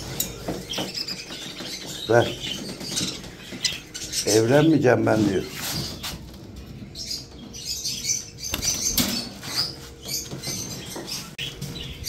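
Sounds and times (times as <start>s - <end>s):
budgerigars chirping: 0.0s - 6.2s.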